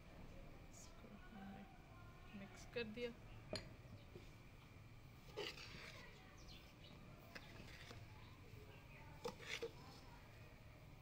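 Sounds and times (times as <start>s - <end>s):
metal spoon scraping in pot: 5.2s - 6.2s, 7.3s - 8.1s, 9.2s - 10.1s.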